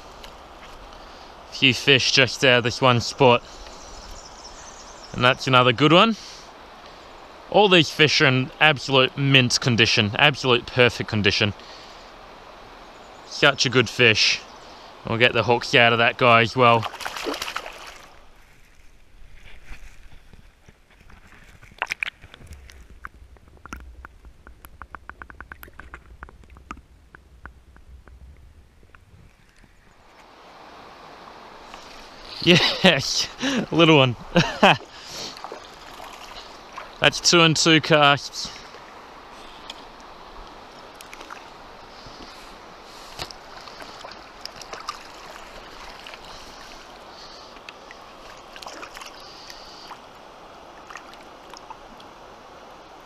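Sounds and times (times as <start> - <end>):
river water rushing: 0.0 - 18.4, 30.0 - 53.0
fish splashing: 16.8 - 18.2, 34.8 - 37.0, 40.7 - 50.1
sharp underwater clicks: 21.6 - 29.7.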